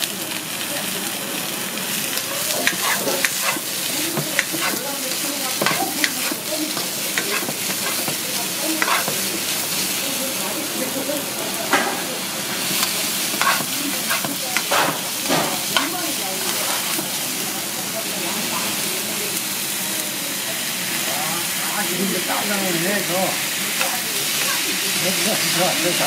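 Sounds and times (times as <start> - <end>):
food sizzling in wok: 0.0 - 26.0
spatula scraping and knocking pan: 2.5 - 9.3, 12.8 - 16.0.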